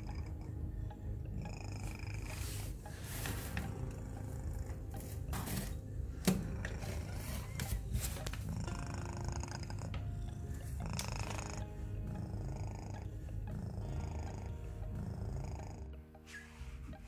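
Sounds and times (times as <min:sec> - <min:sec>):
cat purring: 0:00.0 - 0:16.0.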